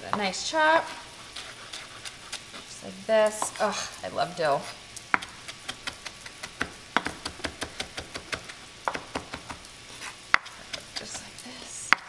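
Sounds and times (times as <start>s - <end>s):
knife chopping on wooden board: 5.1s - 9.6s, 10.3s - 11.2s.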